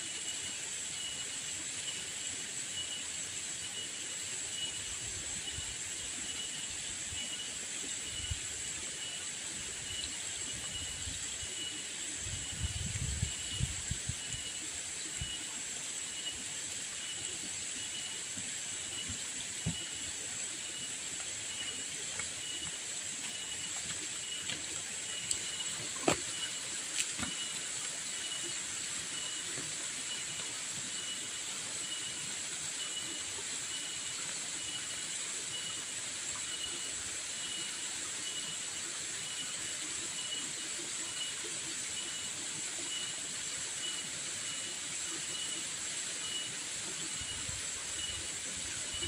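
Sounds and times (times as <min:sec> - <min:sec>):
insect chirping: 0:00.0 - 0:49.0
insects buzzing: 0:00.0 - 0:49.0
footstep clicks on path: 0:22.1 - 0:27.4.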